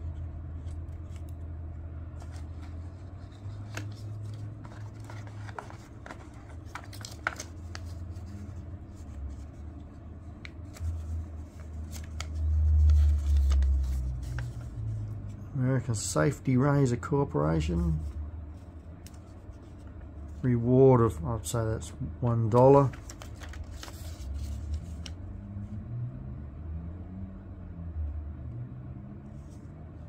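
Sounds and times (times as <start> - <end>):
low handling rumble: 0.0 - 26.6
low steady hum: 0.0 - 30.0
paper rustling and crinkling: 2.1 - 15.3, 22.5 - 25.2.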